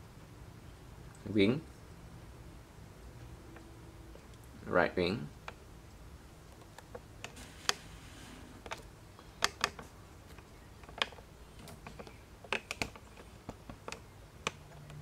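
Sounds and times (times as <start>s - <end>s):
faint low hum: 0.0s - 15.0s
handling clicks and taps: 8.6s - 15.0s.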